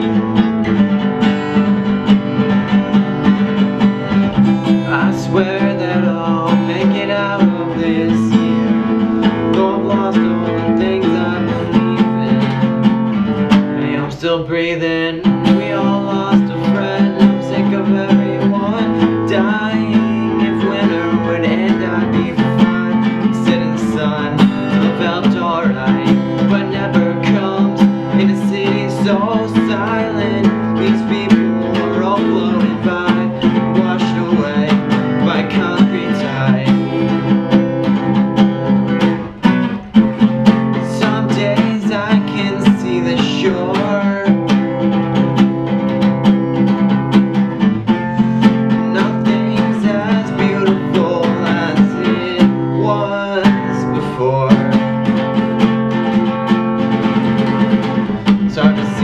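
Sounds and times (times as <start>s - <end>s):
acoustic guitar strumming: 0.0s - 59.0s
young man singing: 0.0s - 59.0s.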